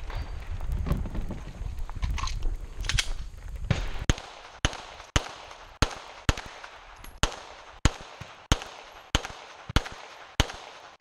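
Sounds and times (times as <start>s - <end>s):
pistol shots: 2.9s - 11.0s.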